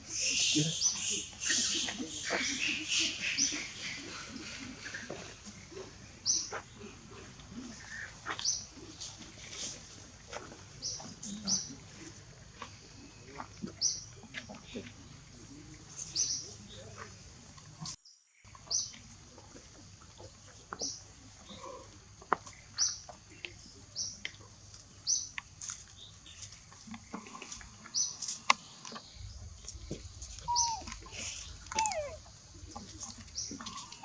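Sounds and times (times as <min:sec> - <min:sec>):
bird chirping: 0:27.9 - 0:34.0.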